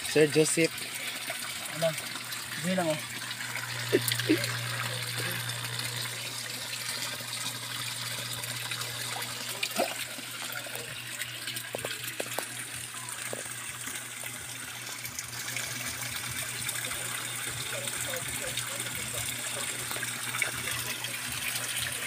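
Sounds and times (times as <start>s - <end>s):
water pouring and splashing: 0.0s - 22.0s
low steady hum: 0.4s - 22.0s.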